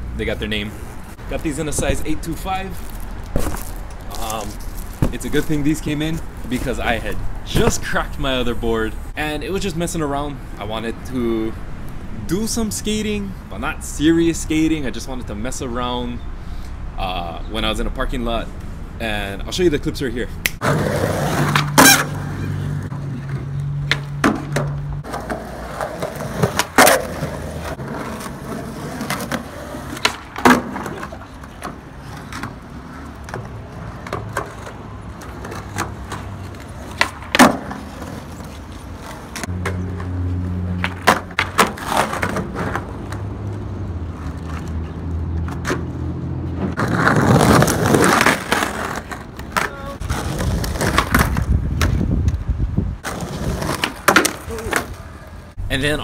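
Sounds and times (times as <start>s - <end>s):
skateboard rolling on asphalt: 0.2s - 7.9s, 20.6s - 55.6s
skateboard clacks: 23.8s - 40.1s, 40.8s - 43.3s, 46.8s - 52.4s, 53.0s - 55.0s.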